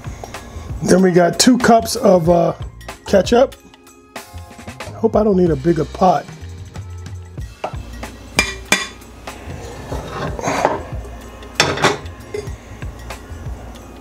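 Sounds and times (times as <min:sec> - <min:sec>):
pot clanking on metal grate: 0:08.4 - 0:09.0, 0:09.8 - 0:11.0, 0:11.6 - 0:12.6.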